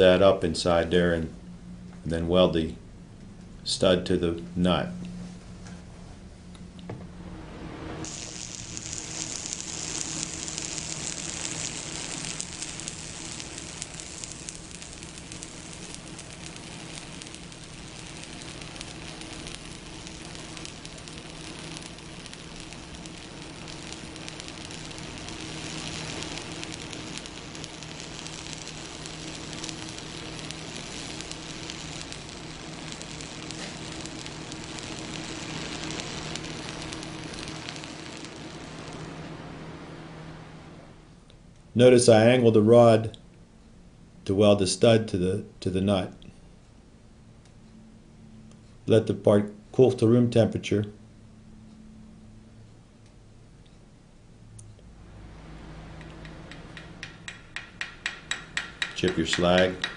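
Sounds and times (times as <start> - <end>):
low steady hum: 0.0 - 59.9
welding arc: 8.0 - 39.7, 55.9 - 59.9.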